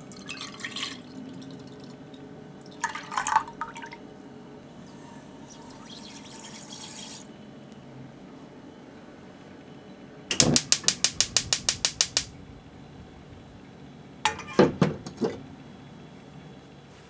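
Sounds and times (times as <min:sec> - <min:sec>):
gas stove igniter clicking: 0:10.3 - 0:12.3
saucepan knocking on grate: 0:10.3 - 0:12.3.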